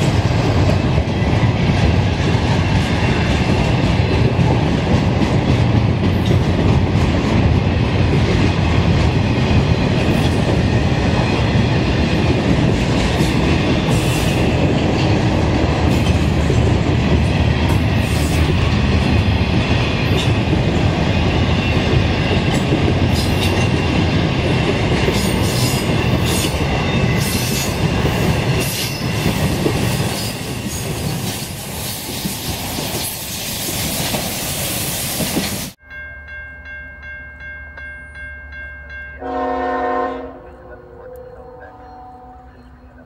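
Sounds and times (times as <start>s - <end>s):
train wheels rumbling and rattling: 0.0s - 35.8s
distant train horn: 39.2s - 43.0s.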